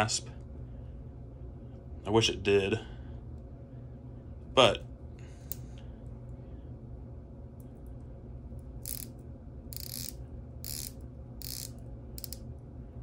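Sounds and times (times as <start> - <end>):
low steady hum: 0.0 - 13.0
watch metallic clicking: 8.8 - 9.1, 9.8 - 12.4.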